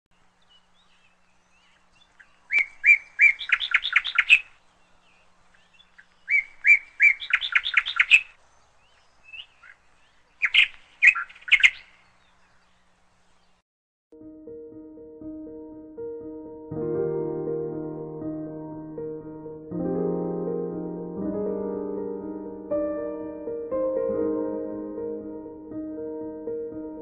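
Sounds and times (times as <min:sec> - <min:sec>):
songbird singing: 0:00.1 - 0:13.6.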